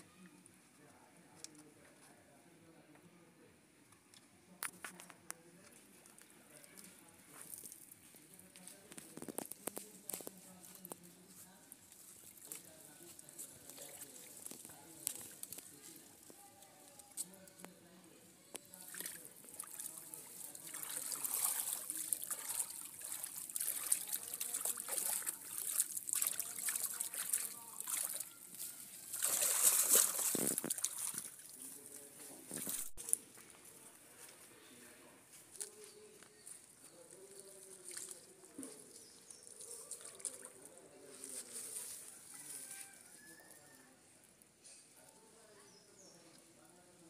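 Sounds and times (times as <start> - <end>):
faint distant voices: 0.0 - 47.0
hands splashing in muddy water: 18.8 - 28.3, 29.0 - 31.6
water trickling: 18.8 - 31.6.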